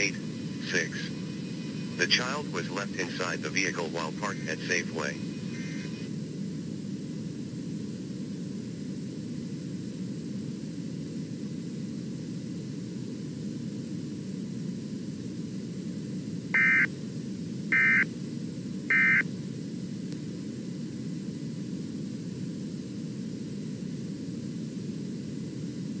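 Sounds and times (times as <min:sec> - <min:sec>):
steady low background noise: 0:00.0 - 0:26.0
data tone bursts: 0:16.6 - 0:16.9, 0:17.7 - 0:18.1, 0:18.9 - 0:19.2.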